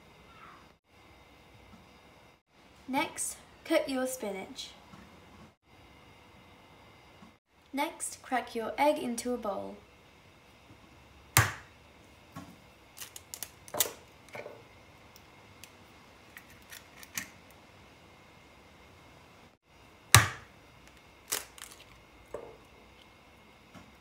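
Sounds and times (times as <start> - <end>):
eggshell cracking: 13.0 - 14.4, 20.2 - 22.1.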